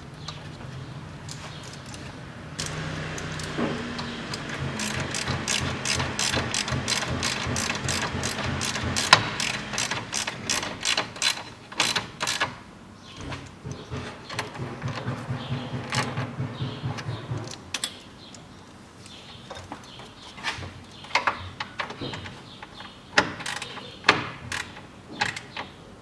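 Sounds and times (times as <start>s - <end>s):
hand ratchet clicking: 2.6s - 12.6s, 24.5s - 25.7s.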